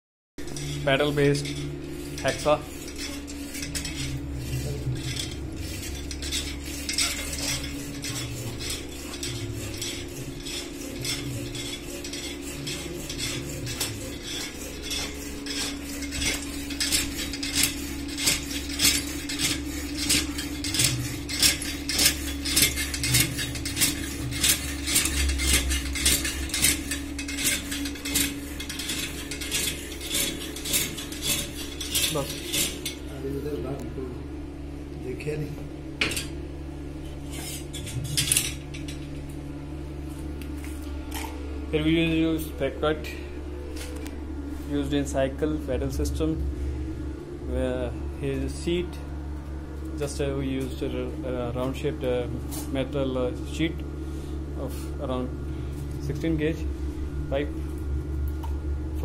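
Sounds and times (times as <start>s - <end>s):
metal linkage clattering: 0.4s - 33.0s, 37.3s - 39.2s
hacksaw rasping through metal: 0.4s - 33.1s, 37.2s - 39.0s.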